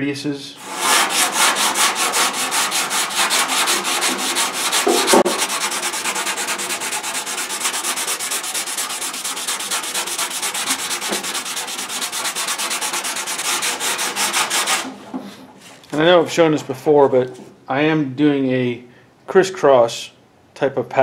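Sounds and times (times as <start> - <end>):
sandpaper scraping filler: 0.6 - 16.1
knock: 4.8 - 5.4, 11.0 - 11.3.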